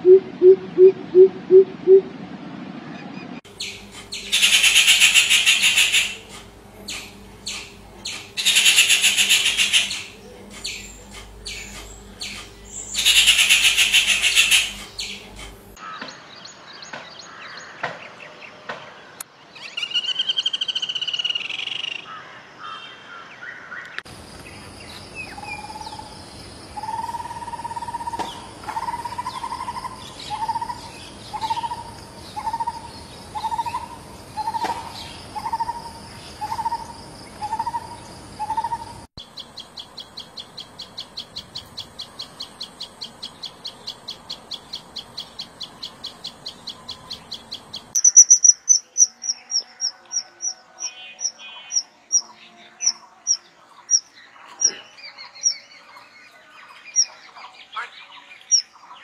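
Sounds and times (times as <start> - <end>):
high insect drone: 3.5 - 15.8, 24.1 - 51.0.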